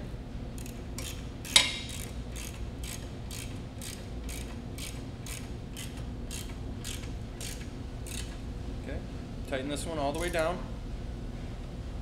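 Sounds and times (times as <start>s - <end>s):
ratchet wrench clicking: 0.6s - 8.4s
sharp metal clack: 1.0s - 2.0s.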